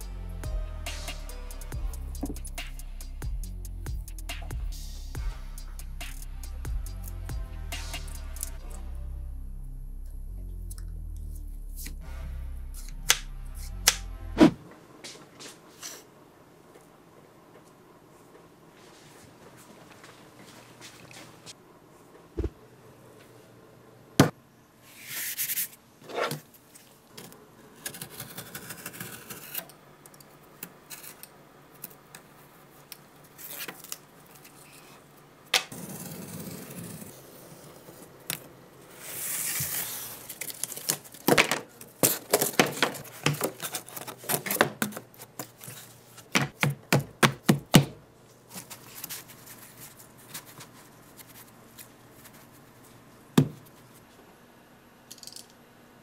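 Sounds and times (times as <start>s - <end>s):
cardboard sheets scraping and tapping: 42.0s - 47.8s.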